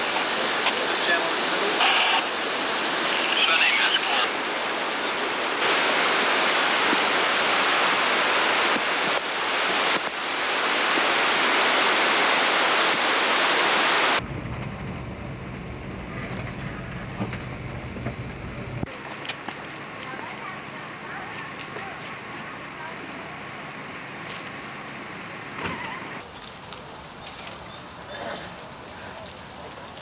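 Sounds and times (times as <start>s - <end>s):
rushing floodwater roar: 0.0s - 26.2s
low hum inside moving car: 14.2s - 18.9s.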